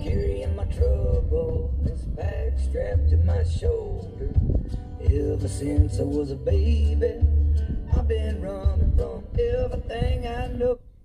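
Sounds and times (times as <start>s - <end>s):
heavy bass from subwoofers: 0.0s - 11.0s
man singing: 0.0s - 11.0s.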